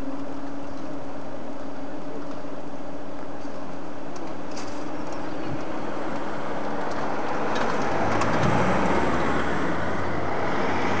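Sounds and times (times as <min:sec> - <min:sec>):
cars driving over crossing: 0:04.8 - 0:11.0.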